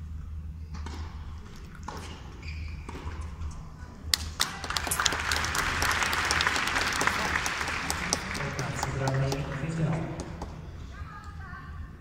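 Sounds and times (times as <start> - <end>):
crowd applauding: 4.2 - 10.4.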